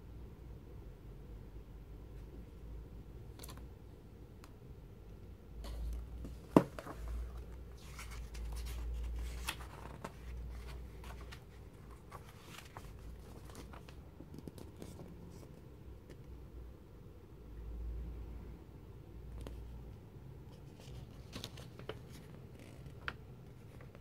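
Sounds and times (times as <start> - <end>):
paper rustling and crinkling: 5.7 - 15.5, 20.5 - 24.0.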